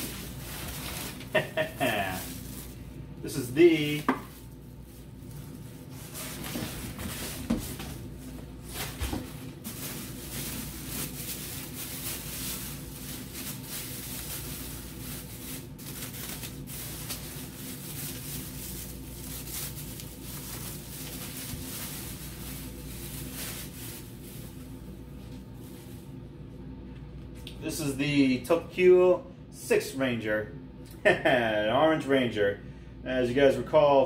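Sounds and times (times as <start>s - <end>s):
plastic bag crinkling: 0.0s - 26.2s.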